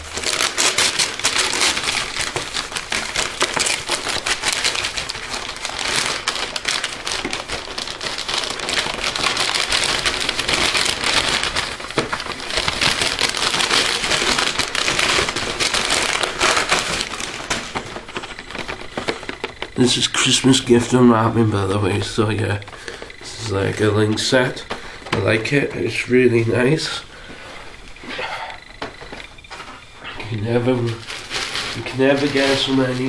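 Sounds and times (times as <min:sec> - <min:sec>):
wrapping paper tearing and crumpling: 0:00.0 - 0:33.0.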